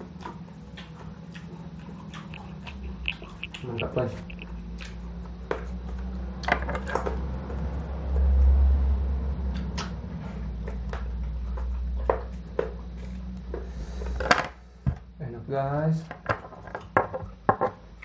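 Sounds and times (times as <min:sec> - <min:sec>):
low hum: 0:00.4 - 0:06.3.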